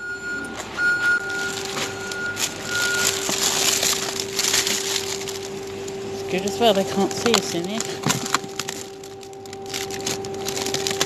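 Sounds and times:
high electronic beep: 0.0 - 3.3
machinery hum: 0.0 - 11.0
plastic bags rustling: 0.4 - 11.0.

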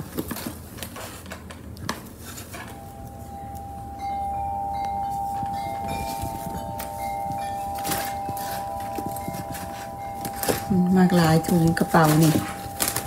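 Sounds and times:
chime-like background music: 2.7 - 13.0
faint taps and rustles: 4.8 - 13.0.

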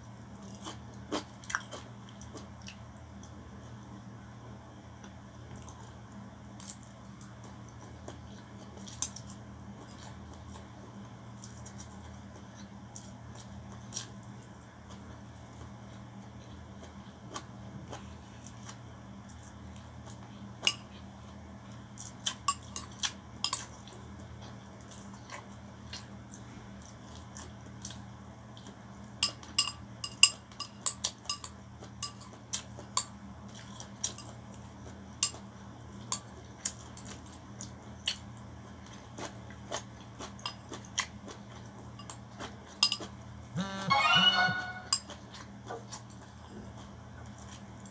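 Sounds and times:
chewing: 0.4 - 3.4, 30.2 - 43.2, 45.0 - 47.9.

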